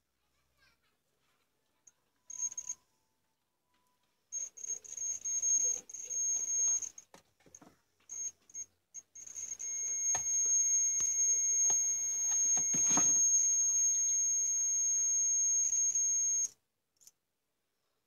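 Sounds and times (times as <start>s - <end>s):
multimeter continuity beep: 2.3s - 2.8s, 4.3s - 7.0s, 8.1s - 16.6s.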